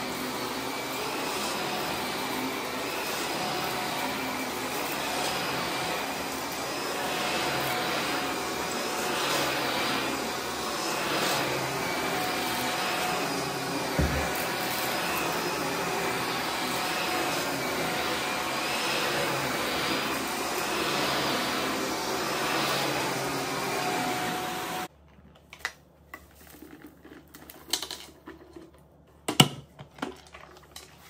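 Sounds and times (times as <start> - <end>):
vacuum cleaner on carpet: 0.0 - 24.9.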